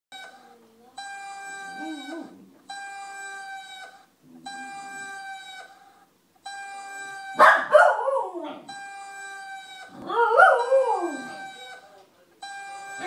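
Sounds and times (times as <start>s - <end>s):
dog howling: 9.8s - 11.6s.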